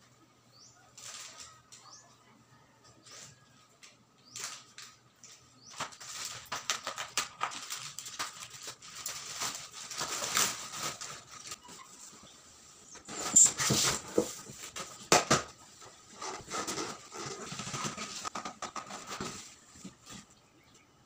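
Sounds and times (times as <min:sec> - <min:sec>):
plastic wrap crackling and rustling: 0:04.3 - 0:11.9.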